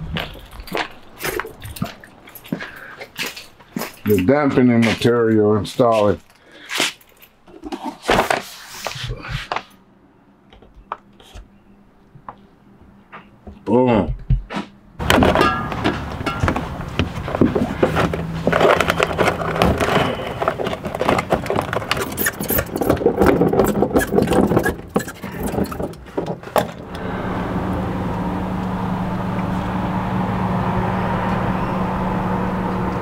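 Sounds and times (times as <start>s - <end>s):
foil mat crinkling: 17.1s - 24.8s
steady low hum: 26.7s - 33.0s.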